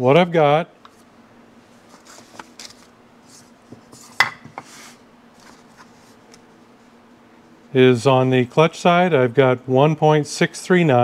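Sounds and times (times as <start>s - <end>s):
faint steady hum: 0.0s - 11.0s
paper pad rustling: 1.8s - 3.5s.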